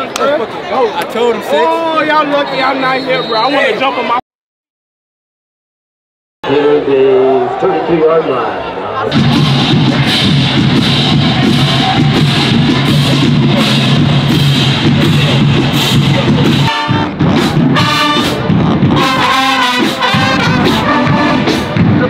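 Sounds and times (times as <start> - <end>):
horns playing melody: 9.1 - 21.8
marching drums beat: 9.1 - 22.0.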